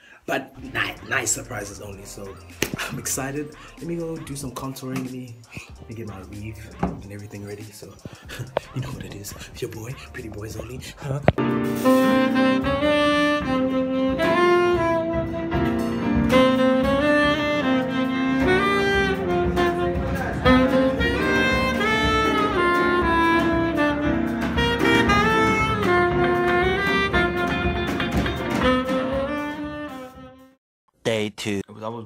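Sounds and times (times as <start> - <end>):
drum kit: 0.6 - 30.2
saxophone melody: 8.3 - 30.6.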